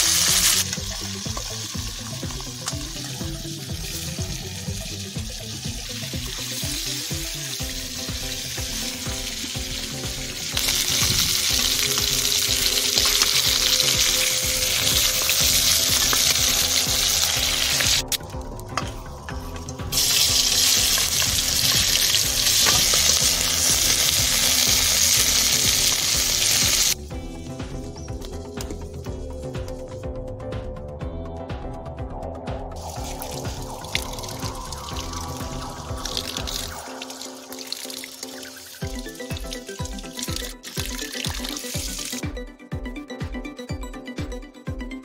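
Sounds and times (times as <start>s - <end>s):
fish sizzling in hot oil: 0.0s - 18.1s, 19.9s - 27.0s, 32.8s - 42.2s.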